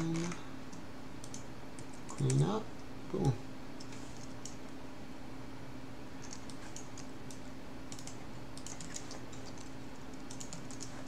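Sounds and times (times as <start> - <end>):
keyboard typing clicks: 0.0 - 2.4, 6.2 - 11.0
faint steady hum: 0.0 - 11.0.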